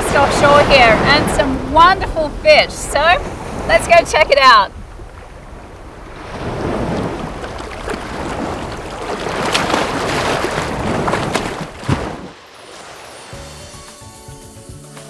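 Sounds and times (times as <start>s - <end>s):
wind on microphone: 0.0s - 12.3s
water splashing from swimming: 4.7s - 13.5s.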